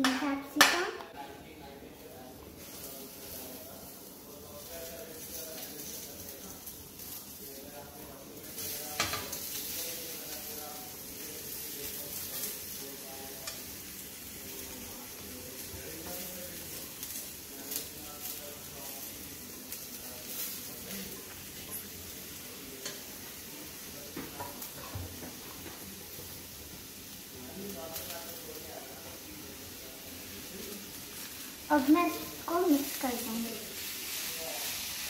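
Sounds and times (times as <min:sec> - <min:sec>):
peppers sizzling in a pan: 0:00.0 - 0:35.0.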